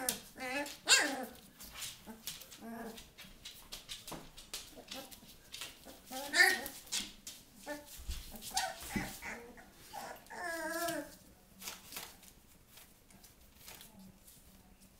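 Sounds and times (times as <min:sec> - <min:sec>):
scratches and rustles on newspaper: 0:04.6 - 0:14.9
puppies whining: 0:05.8 - 0:06.9, 0:07.6 - 0:11.2.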